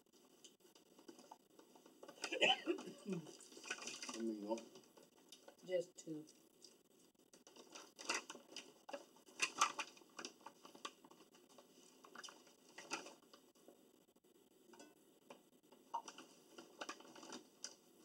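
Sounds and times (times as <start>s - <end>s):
plastic bag crinkling: 2.0s - 4.6s, 7.4s - 13.4s.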